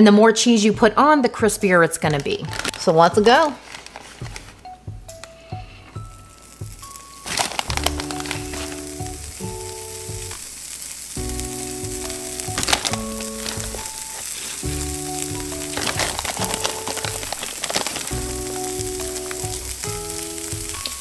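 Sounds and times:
cheese sizzling and crackling: 2.1 - 4.6, 5.2 - 21.0
background music chords: 4.2 - 21.0.

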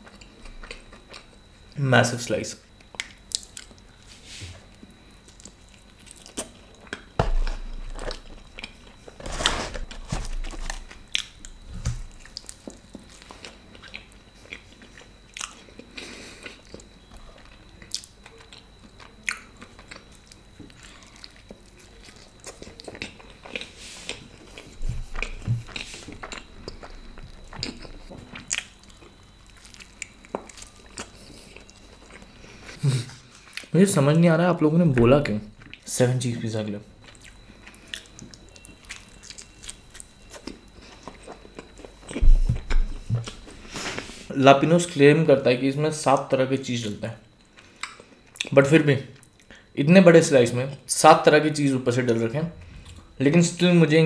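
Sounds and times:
man chewing food: 0.0 - 1.8, 2.7 - 33.7, 35.6 - 35.9, 37.0 - 44.3, 47.3 - 48.6, 49.2 - 49.7, 52.6 - 53.2.

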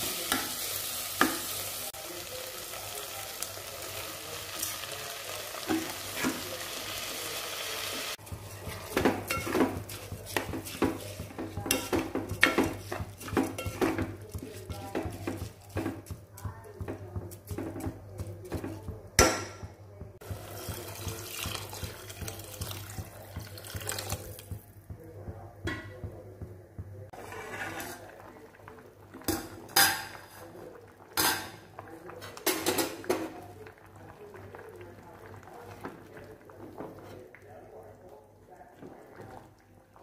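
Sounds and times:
spoon stirring and scraping pot: 8.1 - 19.2, 20.2 - 24.7, 27.1 - 28.4
spoon clattering against pot: 8.7 - 16.2.

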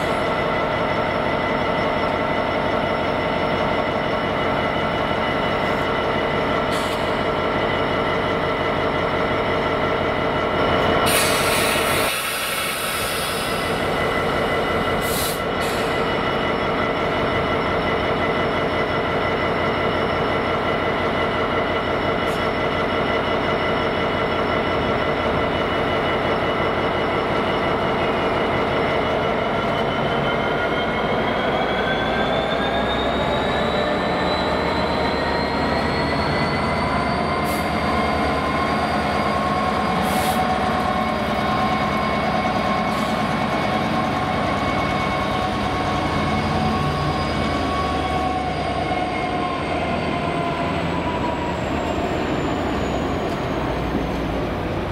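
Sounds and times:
diesel locomotive engine idling: 0.0 - 54.9.

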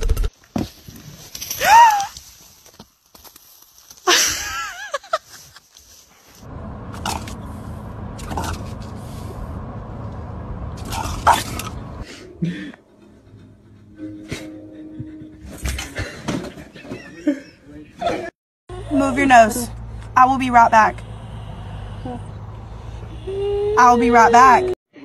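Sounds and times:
car cabin road noise: 6.4 - 12.0, 18.7 - 24.8
wavering high cry: 22.9 - 24.8.

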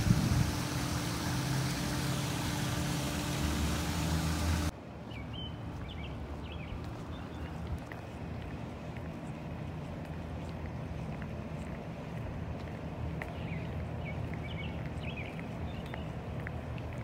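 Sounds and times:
mechanical hum with hiss: 0.0 - 4.7
open-air background: 0.0 - 17.0.

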